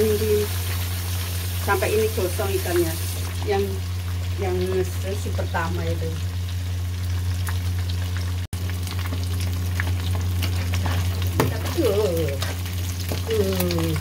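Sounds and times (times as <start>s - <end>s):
fish frying in hot oil: 0.0s - 14.0s.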